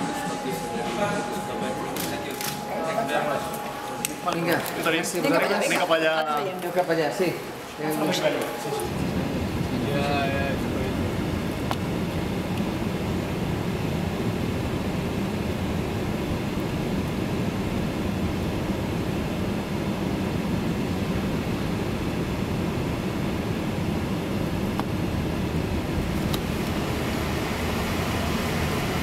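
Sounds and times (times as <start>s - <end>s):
road and engine rumble in car: 8.9s - 29.0s.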